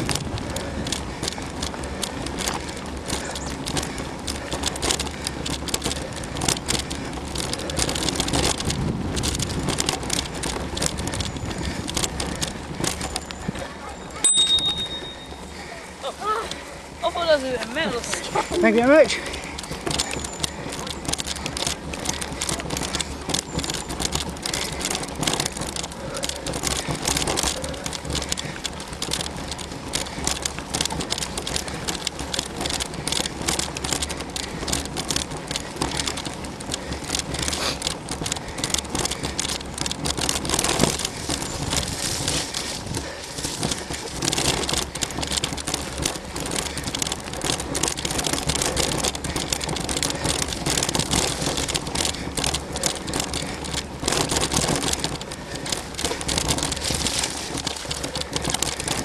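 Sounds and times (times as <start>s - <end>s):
bike crackling and rattling: 0.0s - 59.0s
bike tyres rushing on dirt: 0.0s - 59.0s.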